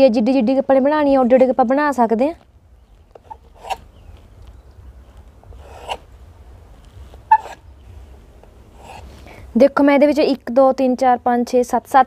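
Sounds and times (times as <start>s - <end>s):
knife scraping through dough: 3.2s - 3.9s, 5.6s - 6.1s, 8.8s - 9.2s.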